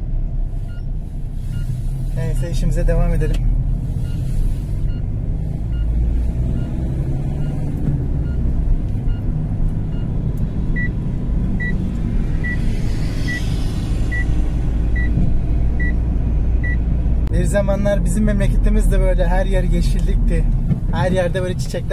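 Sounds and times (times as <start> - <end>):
vehicle road noise rumble: 0.0 - 21.9
short electronic beeps: 4.0 - 5.1, 6.5 - 7.6, 11.6 - 11.8, 12.4 - 13.5, 14.1 - 14.4, 15.0 - 15.2.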